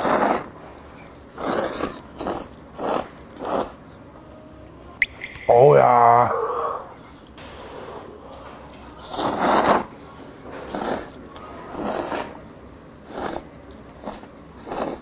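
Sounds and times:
noodles being slurped: 0.0s - 4.0s, 8.7s - 15.0s.

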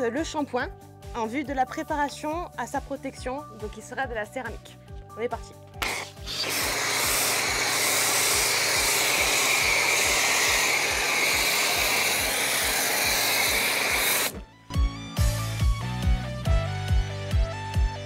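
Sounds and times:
foam cannon spraying hiss: 5.8s - 14.4s.

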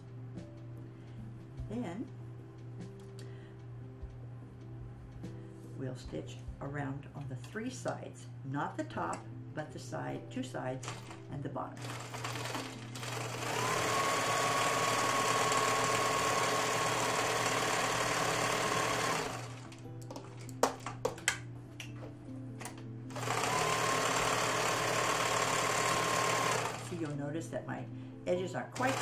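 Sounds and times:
sewing machine stitching: 10.8s - 11.2s, 11.8s - 19.8s, 23.1s - 27.2s, 28.8s - 29.0s.

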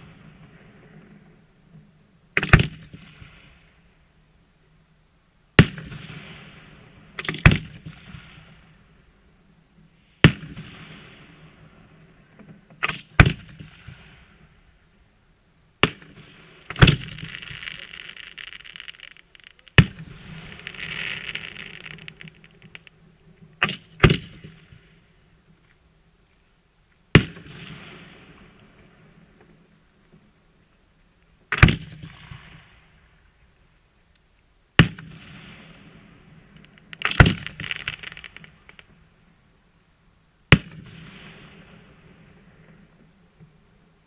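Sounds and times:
firework bangs: 15.8s - 24.8s, 34.8s - 39.0s
firework hissing trail: 16.6s - 22.9s.

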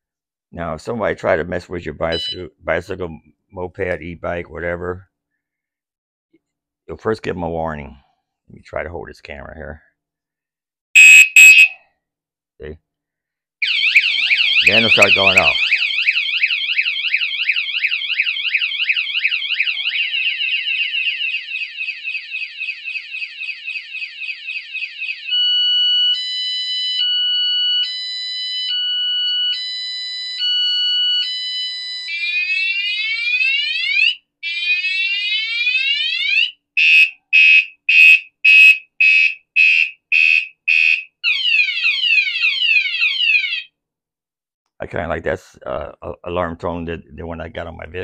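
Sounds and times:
bicycle alarm siren: 2.1s - 2.4s, 11.0s - 11.8s, 13.6s - 43.8s.

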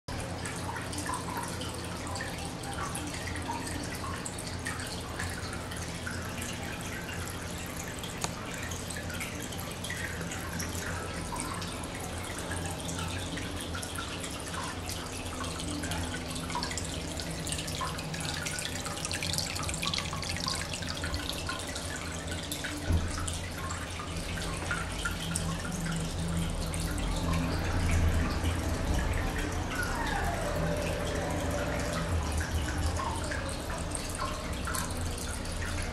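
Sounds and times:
aquarium water trickling and bubbling: 0.1s - 35.9s
low pump hum: 0.1s - 35.9s.

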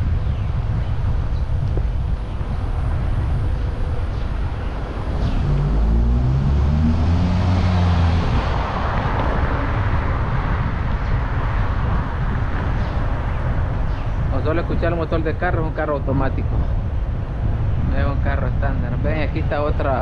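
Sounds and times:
tyre and road noise: 0.0s - 20.0s
car engine accelerating: 4.6s - 11.2s.

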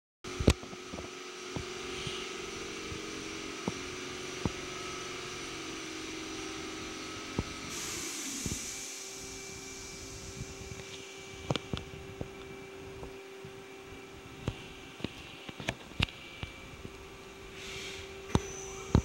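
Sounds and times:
machine hum with fixed tones: 0.3s - 19.0s
high hiss: 7.2s - 11.4s, 17.5s - 19.0s.

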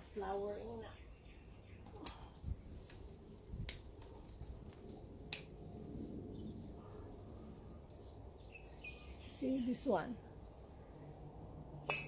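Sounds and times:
vegetable stems snapping: 1.8s - 3.0s, 3.6s - 4.1s, 5.3s - 5.6s.

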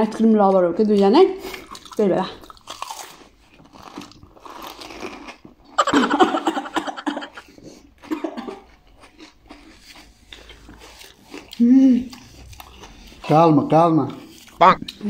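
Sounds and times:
crisp shells crunching when chewed: 1.4s - 5.8s, 7.4s - 13.4s.

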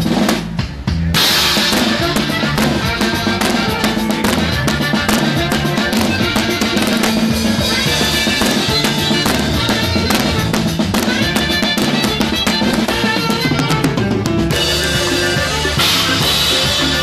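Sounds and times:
bass line: 0.0s - 17.0s
drum kit playing fast: 0.0s - 17.0s
sustained melody notes: 1.2s - 17.0s.

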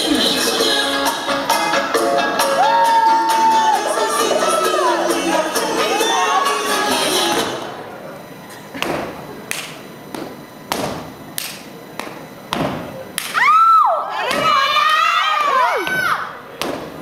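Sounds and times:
shrill cheers and whoops: 2.5s - 5.1s, 13.4s - 16.3s.

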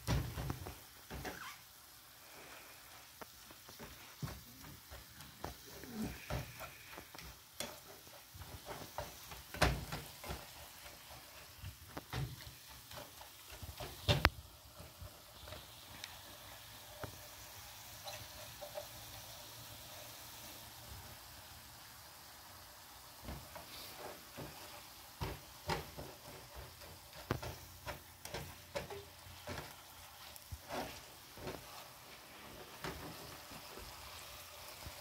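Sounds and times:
meat sizzling in a skillet: 0.0s - 35.0s
spatula scraping and tapping pan: 3.2s - 19.4s, 23.2s - 34.3s.

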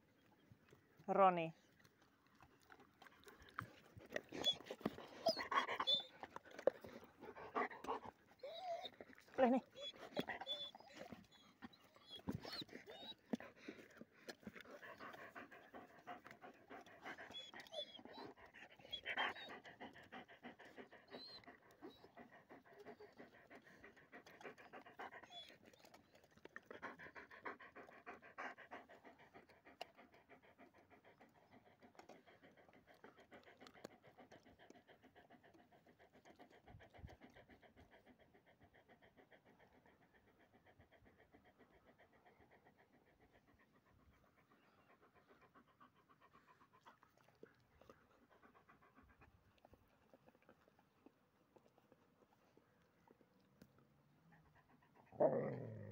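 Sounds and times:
dogs panting: 0.1s - 55.9s.

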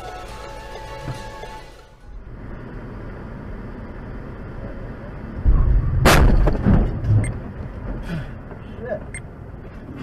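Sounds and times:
road noise inside car: 0.0s - 10.0s
loud impact noise: 5.4s - 7.4s
heavy low thump: 5.4s - 8.0s
loud crash on car hood: 5.5s - 7.2s.

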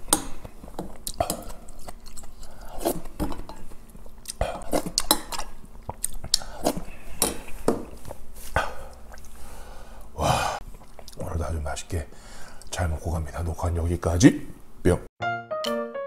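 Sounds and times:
close-up chewing: 0.4s - 3.2s, 10.6s - 11.2s.

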